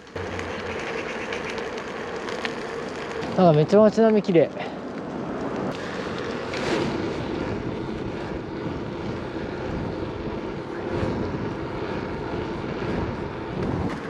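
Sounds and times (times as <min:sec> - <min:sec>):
wind on microphone: 0:05.6 - 0:14.0
bike tyre hiss on wet asphalt: 0:05.7 - 0:14.0.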